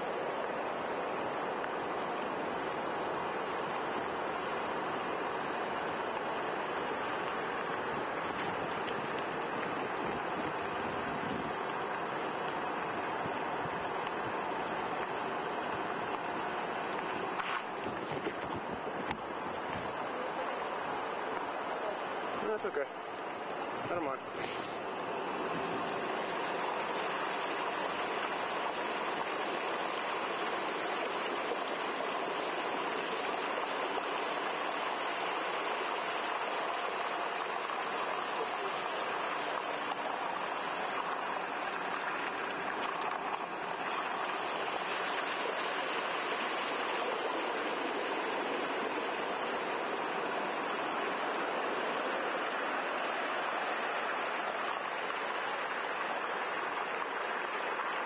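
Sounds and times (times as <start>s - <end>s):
tyre splashing through water: 33.1s - 55.9s.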